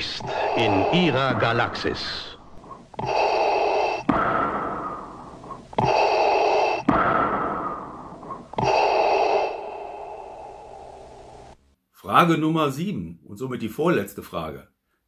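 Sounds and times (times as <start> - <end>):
mechanical respirator breathing: 0.0 - 11.6.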